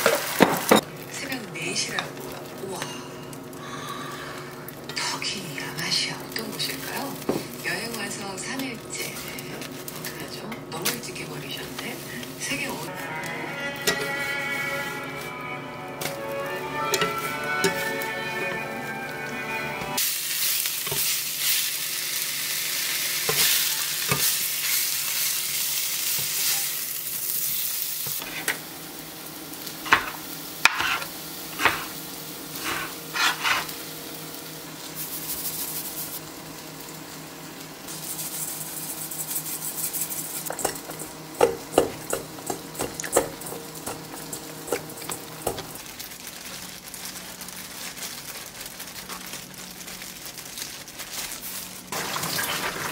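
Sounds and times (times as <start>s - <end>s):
egg sizzling in a skillet: 20.0s - 52.9s.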